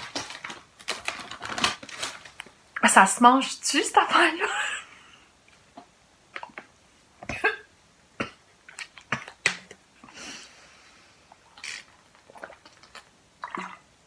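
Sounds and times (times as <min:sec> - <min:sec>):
woman coughing: 0:07.3 - 0:08.4.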